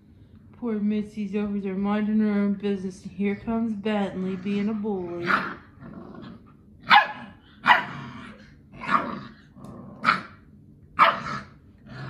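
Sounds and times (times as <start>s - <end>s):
dog barking sharply: 6.9s - 7.9s, 11.0s - 11.3s.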